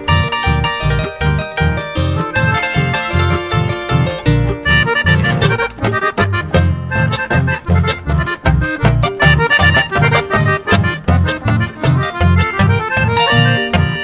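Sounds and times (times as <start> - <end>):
harp: 0.0 - 14.0
piano accordion: 0.0 - 14.0
steady bass beat: 0.0 - 14.0
strummed nylon-string guitars: 0.0 - 14.0.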